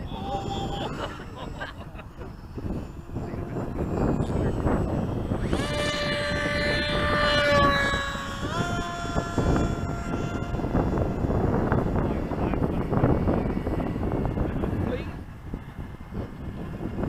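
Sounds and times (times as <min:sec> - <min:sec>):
model plane motor whine: 0:00.0 - 0:17.0
wind rumble on microphone: 0:00.0 - 0:17.0.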